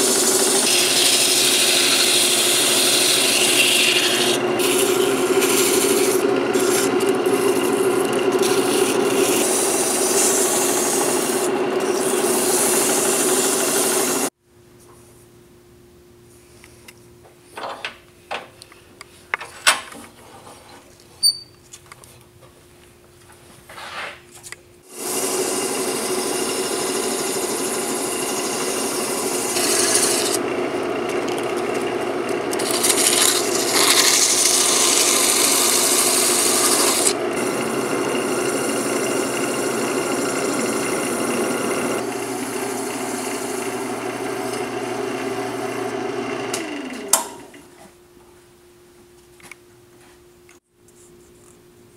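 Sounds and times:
wood lathe humming: 0:00.0 - 0:14.3, 0:24.9 - 0:47.5.

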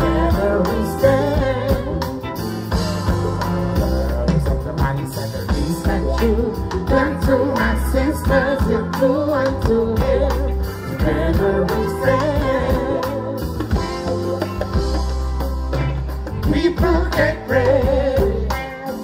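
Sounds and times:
person singing: 0:00.0 - 0:14.3
deep bass line: 0:00.0 - 0:19.0
reggae band playing: 0:00.0 - 0:19.0.

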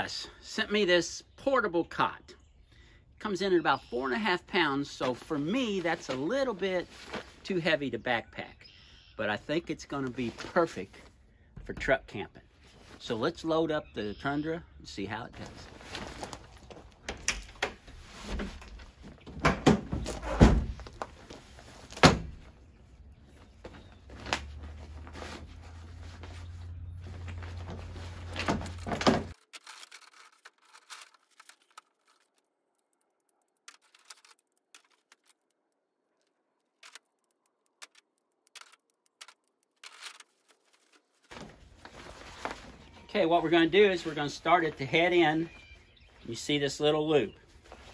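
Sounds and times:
faint clicks and rustles: 0:23.2 - 0:43.1.

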